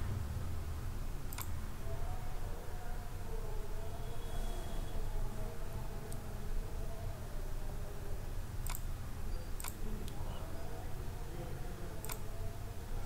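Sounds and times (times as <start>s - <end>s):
low background hum: 0.0s - 13.0s
computer mouse clicking: 1.3s - 1.5s, 12.0s - 12.2s.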